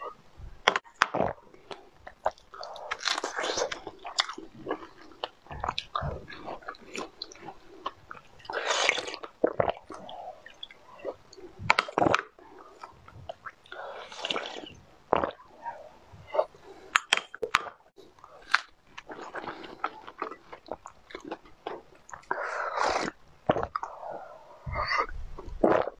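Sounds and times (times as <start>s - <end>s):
wet chewing: 0.6s - 25.9s
slurping: 1.1s - 17.5s, 22.1s - 25.9s.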